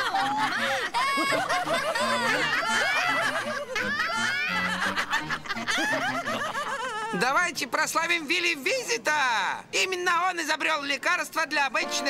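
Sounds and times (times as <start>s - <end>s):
crowd of voices laughing: 0.0s - 7.2s
soft music with low notes: 11.8s - 12.0s.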